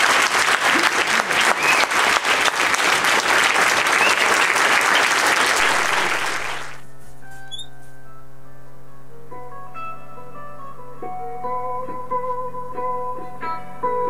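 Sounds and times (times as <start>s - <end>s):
audience applauding: 0.0s - 6.9s
music: 6.8s - 14.0s.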